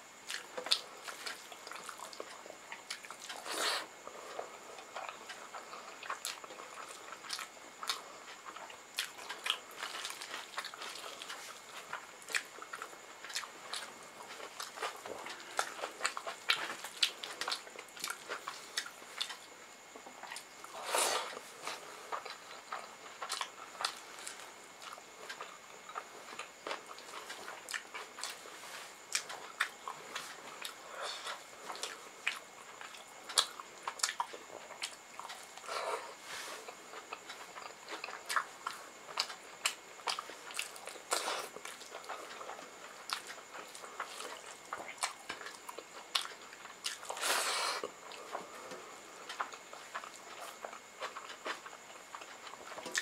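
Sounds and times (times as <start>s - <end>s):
chewing with wet mouth clicks: 0.2s - 3.5s, 4.3s - 35.8s, 36.6s - 53.0s.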